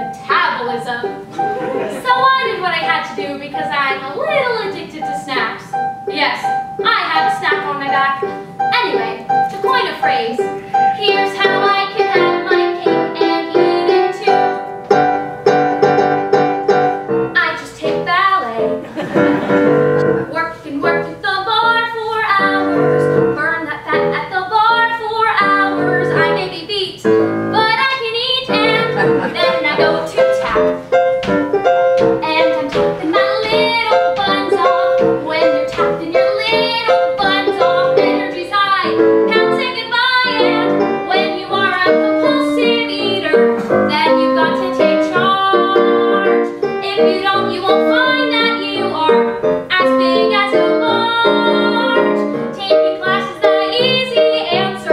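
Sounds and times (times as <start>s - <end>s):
piano accompaniment: 0.0s - 54.9s
woman singing: 6.9s - 14.6s, 20.3s - 30.7s, 32.2s - 54.9s.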